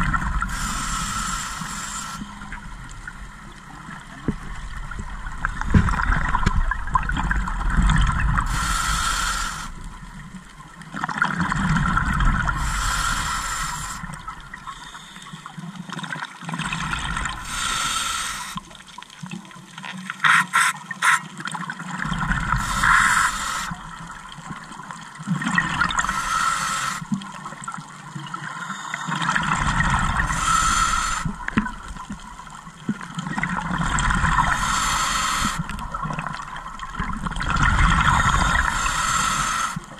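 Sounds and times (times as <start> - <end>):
diver breathing through regulator: 0.4 - 2.6, 8.4 - 9.9, 12.4 - 15.5, 16.7 - 18.7, 22.1 - 24.0, 25.9 - 27.2, 28.4 - 31.8, 33.6 - 35.9, 37.6 - 39.9
bubbles gurgling: 2.3 - 8.6, 9.9 - 12.7, 16.0 - 17.8, 29.1 - 39.9.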